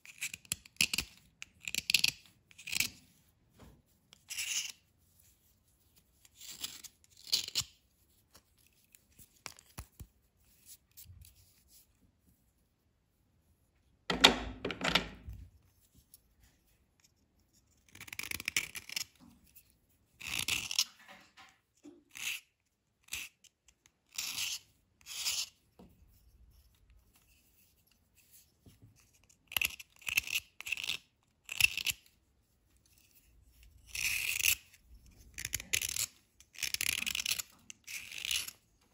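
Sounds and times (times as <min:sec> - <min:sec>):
knife blade scraping chalky bar: 0:04.1 - 0:05.3, 0:06.2 - 0:07.9, 0:22.1 - 0:23.5, 0:24.1 - 0:25.6, 0:32.8 - 0:38.6.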